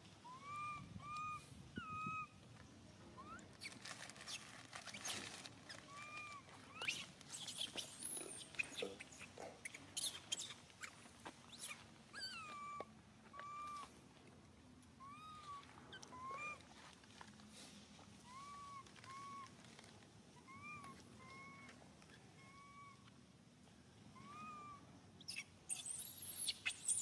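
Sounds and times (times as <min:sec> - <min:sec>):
faint clicks and rustles: 0:02.4 - 0:12.0, 0:12.8 - 0:22.2
baby monkey cooing: 0:20.4 - 0:21.8, 0:22.4 - 0:23.0, 0:24.2 - 0:27.0.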